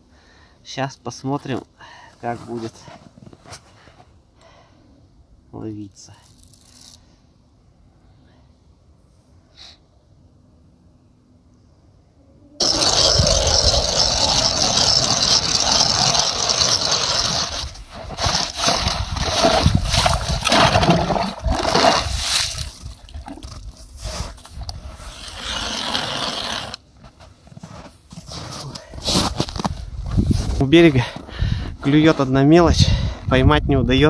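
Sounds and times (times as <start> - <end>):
ice auger grinding ice: 12.6 - 26.8.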